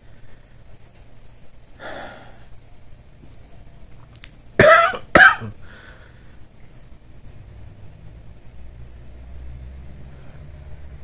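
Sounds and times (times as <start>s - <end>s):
person exhaling: 1.8s - 2.5s, 5.6s - 6.3s
person coughing: 4.6s - 5.6s.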